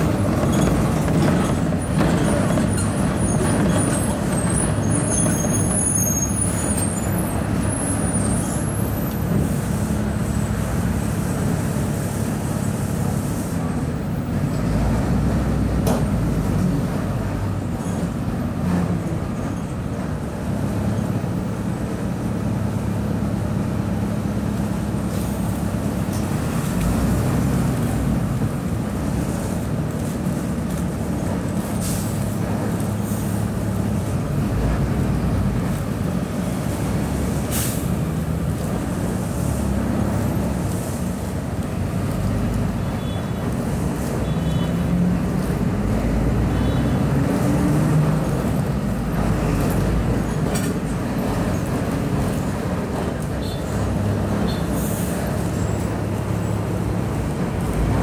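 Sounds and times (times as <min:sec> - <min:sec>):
bus diesel engine running: 0:00.0 - 0:58.0
road noise: 0:00.0 - 0:58.0.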